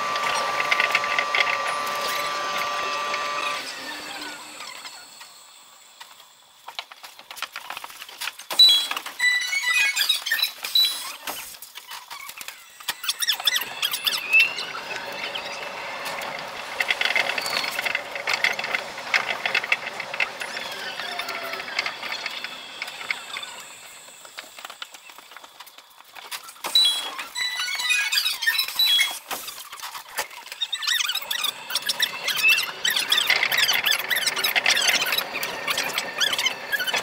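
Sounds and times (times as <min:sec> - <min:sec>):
sped-up train squealing hiss: 0:08.6 - 0:11.6, 0:12.7 - 0:18.8, 0:19.5 - 0:24.6, 0:26.7 - 0:29.8, 0:30.7 - 0:37.0.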